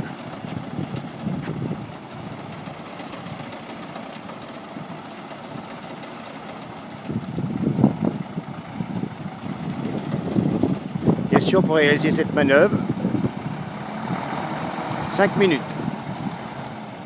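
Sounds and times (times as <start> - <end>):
diesel truck engine rumbling: 0.0 - 17.0.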